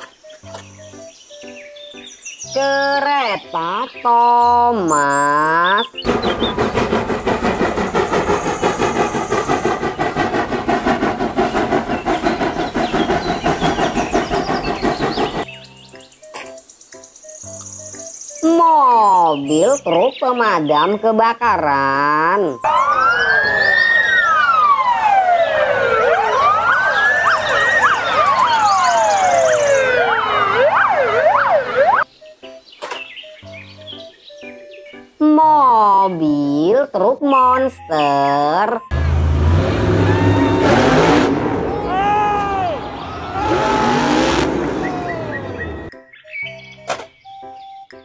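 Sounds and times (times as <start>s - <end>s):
steam locomotive chuffing: 6.0s - 15.5s, 38.9s - 45.9s
steam hissing: 6.1s - 15.5s
fire engine sirens wailing: 22.6s - 32.1s, 38.9s - 45.9s
siren yelping sweeps: 22.6s - 32.1s, 39.8s - 45.9s.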